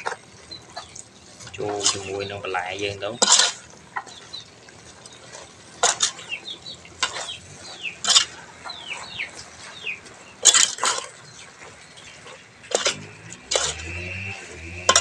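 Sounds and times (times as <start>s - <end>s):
bird chirps: 0.0s - 15.0s
metal ladle clanking in pot: 3.2s - 4.2s.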